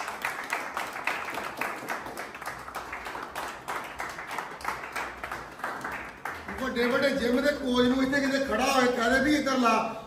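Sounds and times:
people clapping in rhythm: 0.0s - 8.0s.

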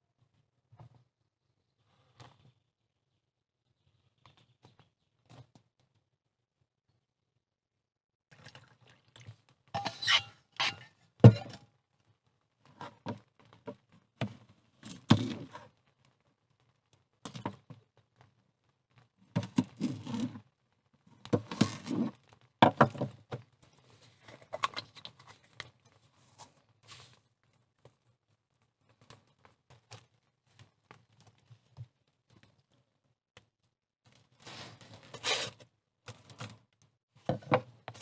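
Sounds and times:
objects being handled: 21.3s - 32.8s.

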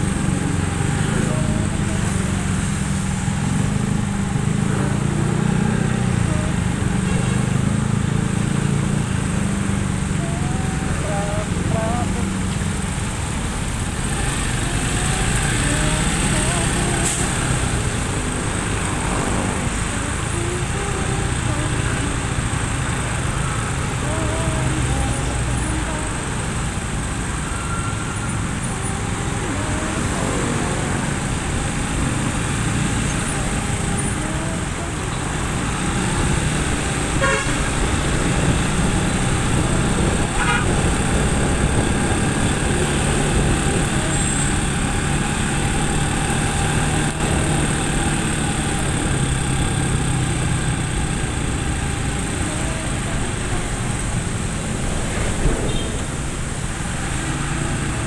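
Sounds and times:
motorcycle engine hum: 0.0s - 58.0s
traffic on wet road: 0.0s - 58.0s
vehicle horn: 37.1s - 39.2s, 40.2s - 41.5s, 55.7s - 56.0s.

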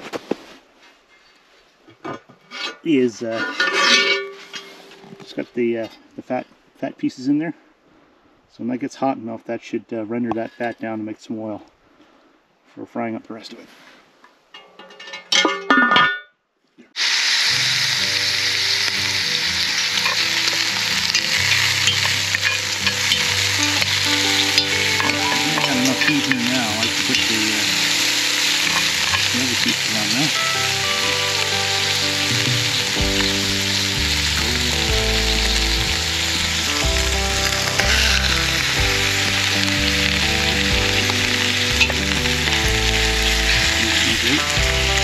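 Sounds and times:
fat sizzling in cast iron: 3.3s - 5.3s, 17.0s - 45.0s
low shifting tones: 19.4s - 44.1s.

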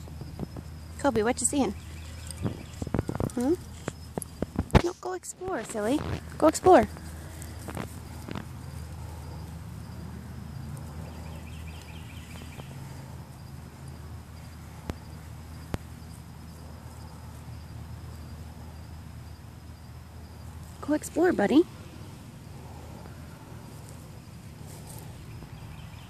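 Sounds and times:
fast chirping: 0.0s - 4.6s
insects trilling: 0.0s - 26.0s
low steady hum: 0.0s - 26.0s.

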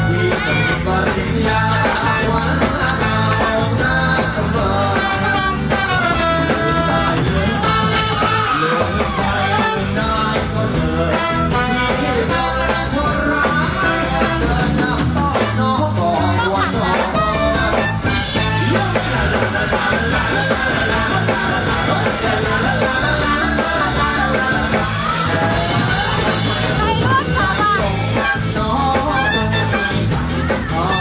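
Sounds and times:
live band playing upbeat music: 0.0s - 31.0s
person singing: 0.0s - 31.0s.

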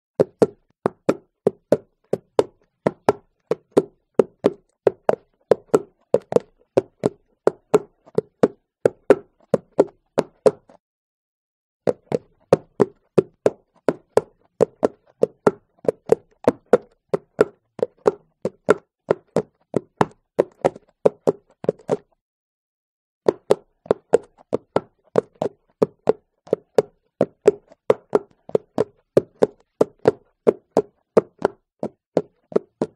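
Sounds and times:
horse hooves clip-clopping: 0.3s - 10.8s, 11.9s - 22.1s, 23.4s - 32.9s.

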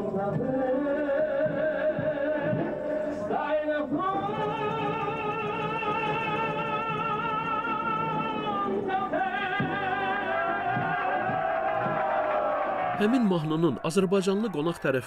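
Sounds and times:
man singing with vibrato: 0.0s - 12.0s.

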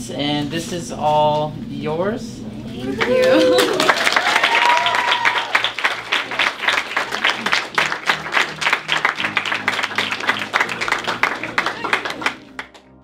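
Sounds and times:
hand-clapping applause: 2.9s - 13.0s
background music with bass: 6.0s - 13.0s.

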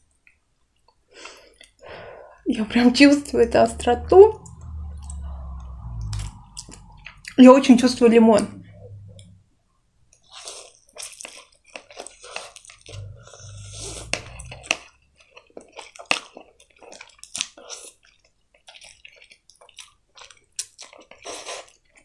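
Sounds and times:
chewing: 10.2s - 22.0s.

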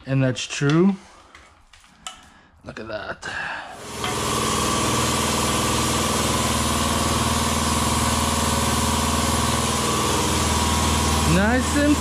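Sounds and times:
pump motor humming: 3.8s - 12.0s.

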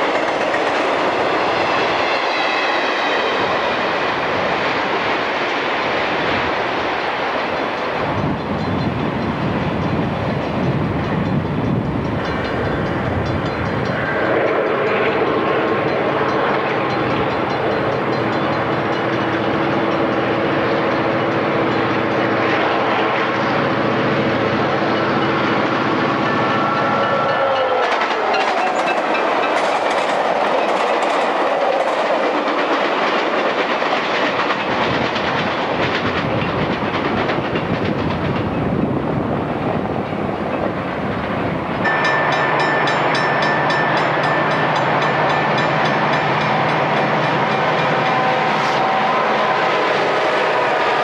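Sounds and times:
diesel locomotives passing: 0.0s - 51.0s
train rumble and rail clatter: 0.0s - 51.0s
crossing bell ringing: 7.8s - 29.8s, 41.8s - 51.0s
train horn: 26.6s - 29.2s, 41.8s - 51.0s.

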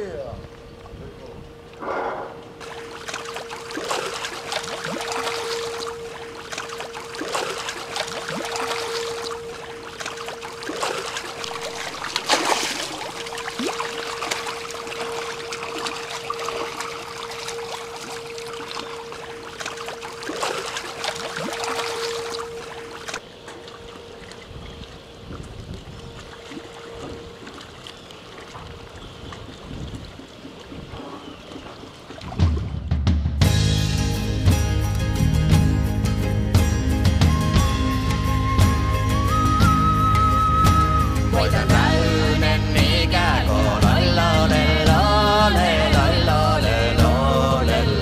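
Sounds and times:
steady motor hum: 0.1s - 29.2s
fish thrashing and splashing: 2.6s - 32.8s.

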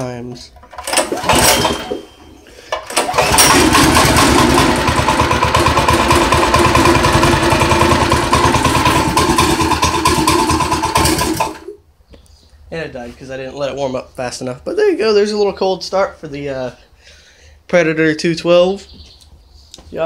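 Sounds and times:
small engine starting and running: 0.6s - 11.8s.

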